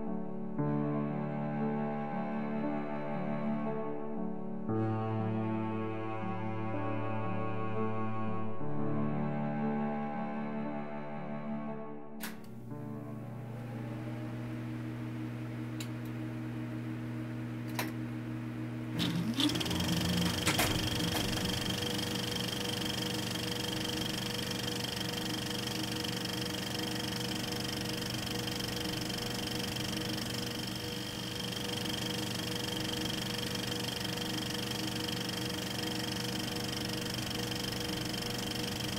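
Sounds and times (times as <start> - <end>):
projector clicks: 12.2 - 12.6, 17.6 - 18.0, 19.0 - 38.9
film projector whirring: 13.4 - 38.9.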